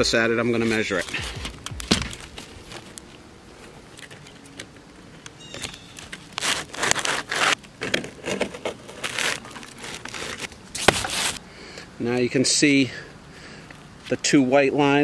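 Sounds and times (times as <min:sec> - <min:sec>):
shingle scraping against roof: 0:05.4 - 0:11.4.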